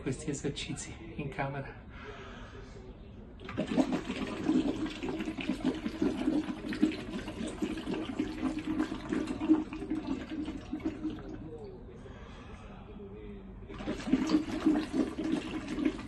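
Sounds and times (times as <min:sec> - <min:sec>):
water bubbling through a tube: 0:03.4 - 0:11.7, 0:13.7 - 0:16.0.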